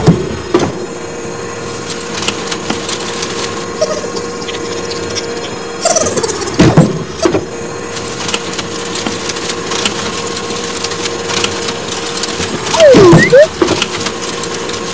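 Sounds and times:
mechanical whirr and hum: 0.0 - 14.9
swooping sound effect: 12.8 - 13.5.

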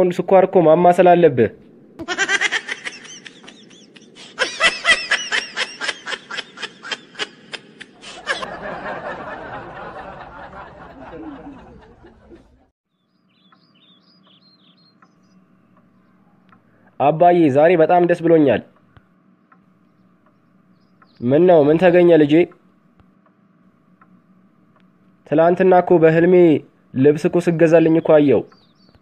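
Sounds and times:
canned laughter: 2.0 - 12.7.

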